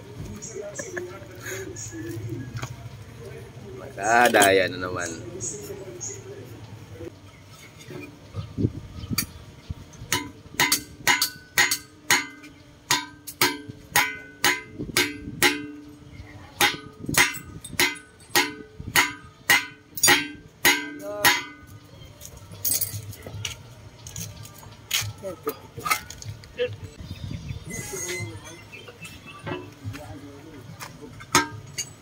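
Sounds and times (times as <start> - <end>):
hammer striking steel: 10.1 - 16.0, 16.6 - 21.8, 31.3 - 32.0.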